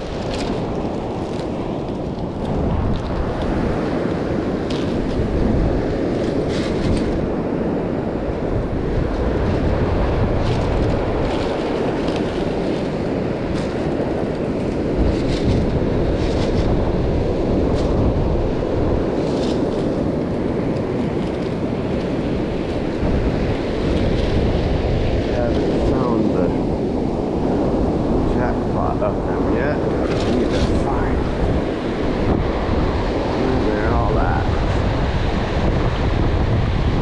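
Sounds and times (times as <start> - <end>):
surf washing up beach: 0.0 - 37.0
wind buffeting microphone: 0.0 - 37.0.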